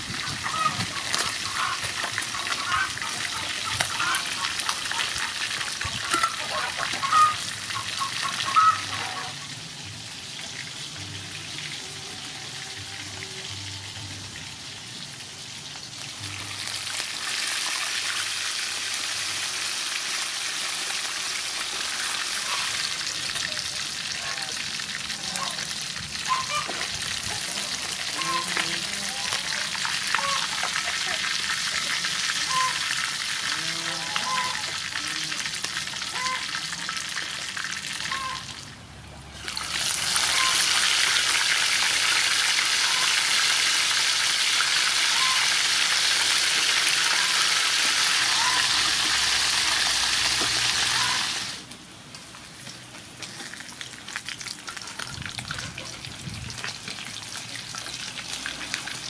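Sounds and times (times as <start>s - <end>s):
fish deep-frying in oil: 0.0s - 59.0s.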